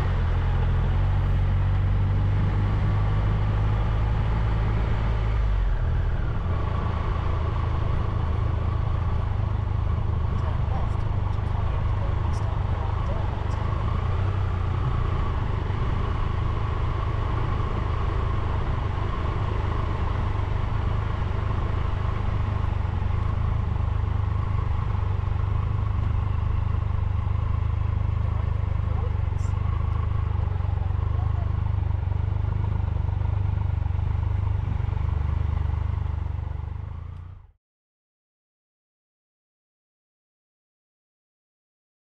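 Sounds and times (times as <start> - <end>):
motorcycle engine rumbling: 5.6 - 37.4.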